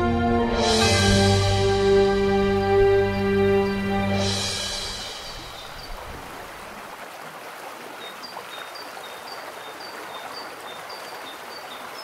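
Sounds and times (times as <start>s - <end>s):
steady rushing hiss: 1.6s - 6.9s.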